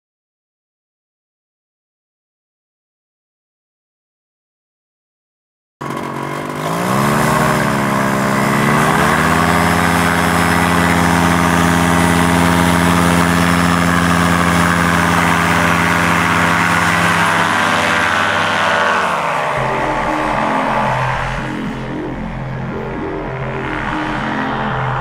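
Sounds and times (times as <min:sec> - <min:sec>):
paramotor engine and propeller: 0:05.8 - 0:25.0.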